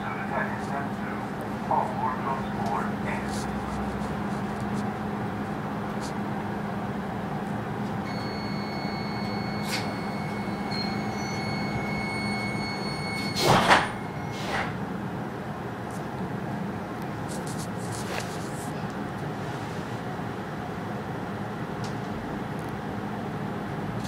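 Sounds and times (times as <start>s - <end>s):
electrical hum: 0.0s - 24.0s
thin high steady tone: 8.0s - 14.4s
train doors closing whoosh: 9.4s - 10.0s, 12.3s - 14.8s.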